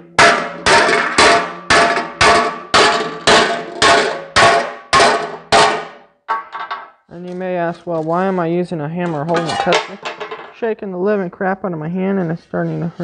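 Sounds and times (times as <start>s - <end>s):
hammer striking metal: 0.0s - 6.9s.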